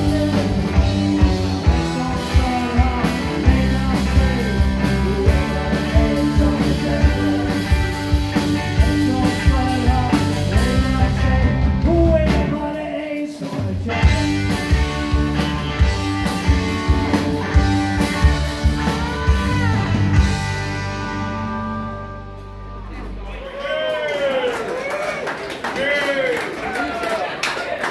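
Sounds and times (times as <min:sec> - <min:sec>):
person singing: 0:00.0 - 0:14.8, 0:18.6 - 0:20.2
drum kit: 0:00.0 - 0:23.3
electric guitars: 0:00.0 - 0:23.5
bass guitar: 0:00.0 - 0:23.9.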